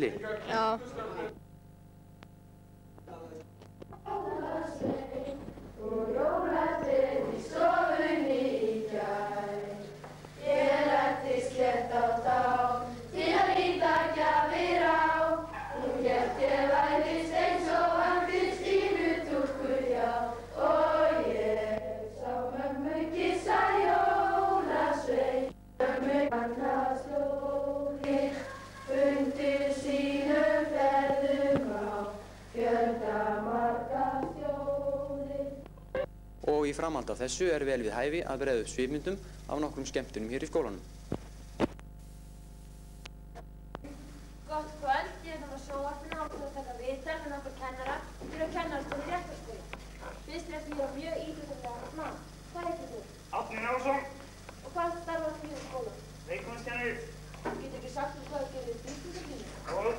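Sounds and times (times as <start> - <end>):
low film soundtrack hum: 0.0 - 59.9
children singing together: 4.0 - 35.6.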